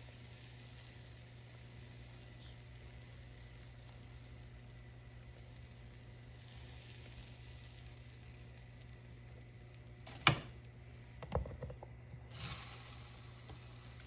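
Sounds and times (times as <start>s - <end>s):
faint sizzling: 0.0s - 14.0s
steady low hum: 0.0s - 14.0s
knocks: 11.2s - 11.9s.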